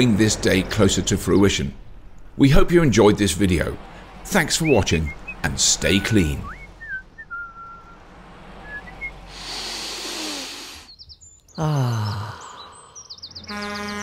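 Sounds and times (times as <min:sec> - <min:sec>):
cartoon birds chirping: 0:08.6 - 0:14.0
hiss: 0:09.3 - 0:11.0.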